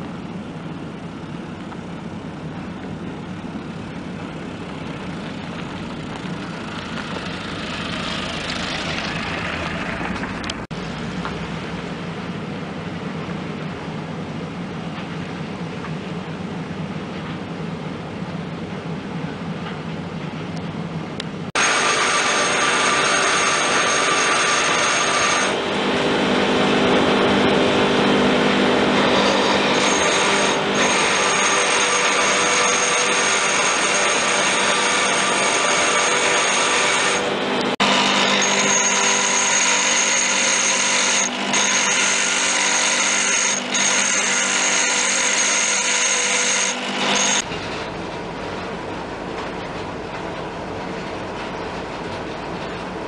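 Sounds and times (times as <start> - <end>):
low steady rumble: 0.0 - 21.6
bench grinder grinding metal: 21.6 - 47.5.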